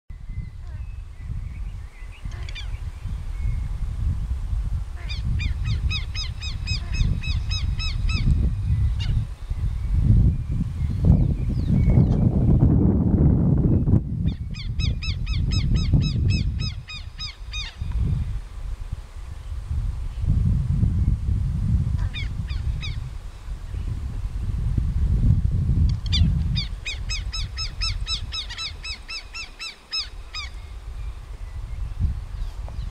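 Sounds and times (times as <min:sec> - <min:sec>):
wind buffeting microphone: 0:00.1 - 0:32.9
lapwing alarm calls: 0:14.3 - 0:17.8, 0:26.1 - 0:30.7.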